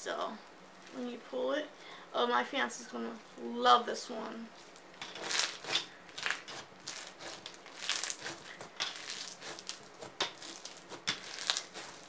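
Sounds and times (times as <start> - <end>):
slime beads crunching: 4.6 - 12.0.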